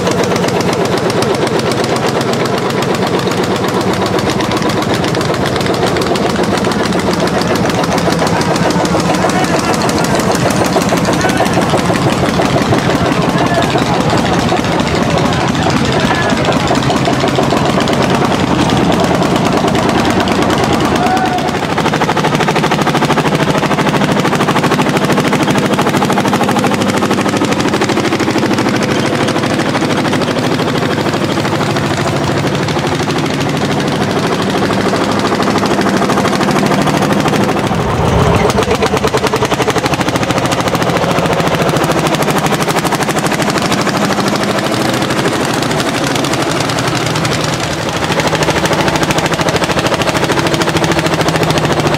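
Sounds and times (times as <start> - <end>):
tractor engine under load: 0.0 - 51.9.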